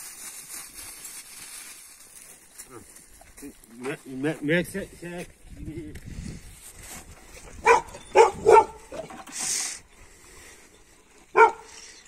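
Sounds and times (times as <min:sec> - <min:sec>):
dog barking: 0:07.6 - 0:09.0, 0:11.3 - 0:11.7.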